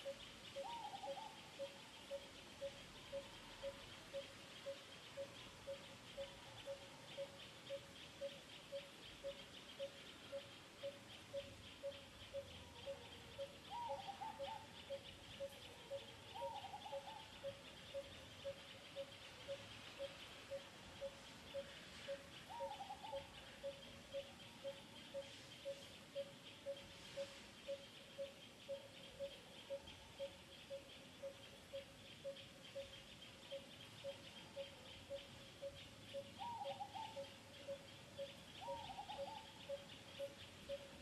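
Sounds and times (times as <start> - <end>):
short wavering calls: 0.0 - 41.0.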